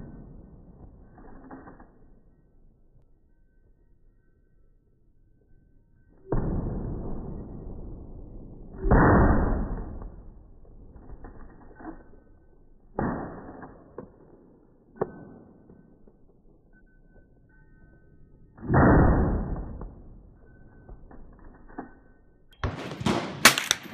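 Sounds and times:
slow-motion rifle shot booms: 6.3 - 10.2
sharp rifle shots: 22.6 - 23.9.

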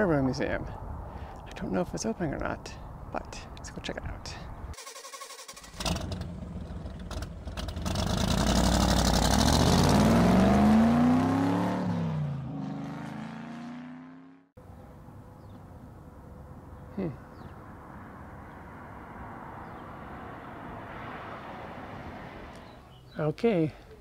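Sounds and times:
faint outdoor background: 0.0 - 24.0
engine-like tone passing by: 17.5 - 23.0.

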